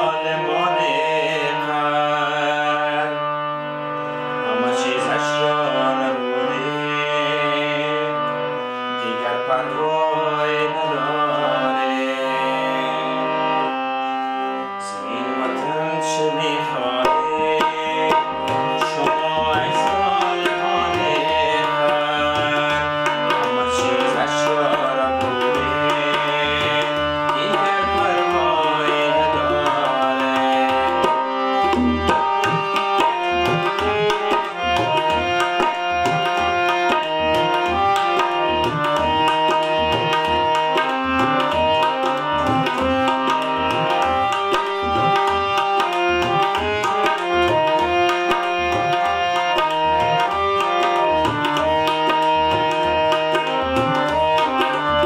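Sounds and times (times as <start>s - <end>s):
harmonium playing a melody: 0.0s - 55.0s
tabla drums: 17.0s - 55.0s.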